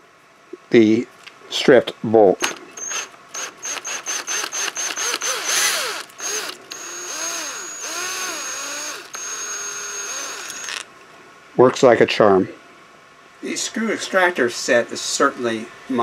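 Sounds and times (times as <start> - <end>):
squeal of bolt turning: 2.8 - 5.3
cordless drill motor whining: 2.8 - 10.9.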